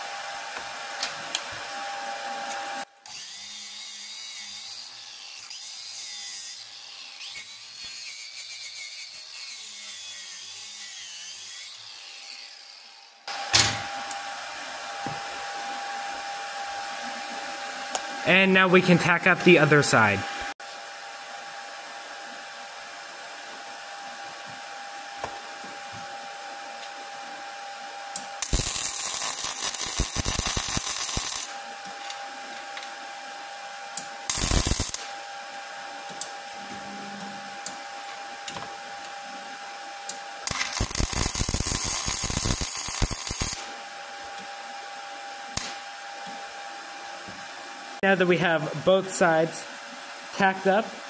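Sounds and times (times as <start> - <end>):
steady hum: 13.3 - 51.0
wire welder arcing crackle: 28.1 - 32.2, 33.9 - 35.2, 40.0 - 44.4, 45.5 - 46.3.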